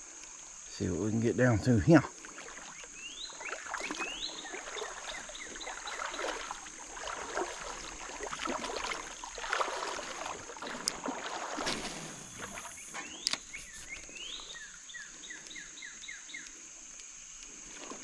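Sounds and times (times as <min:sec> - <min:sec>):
steady high hiss: 0:00.0 - 0:02.2, 0:10.9 - 0:18.0
legs wading through water: 0:02.0 - 0:16.4.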